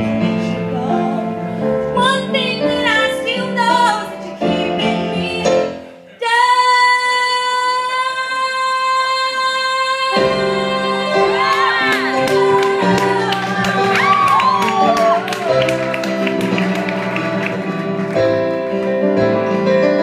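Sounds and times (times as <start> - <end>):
woman singing: 0.0 - 16.2
band accompaniment: 10.2 - 20.0.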